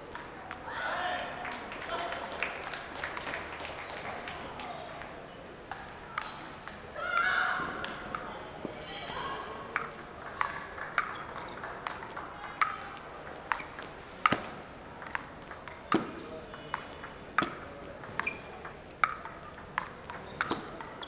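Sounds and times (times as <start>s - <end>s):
ping pong ball clicking off paddles: 5.4s - 6.8s, 9.7s - 21.0s
ball bouncing on table: 9.8s - 21.0s.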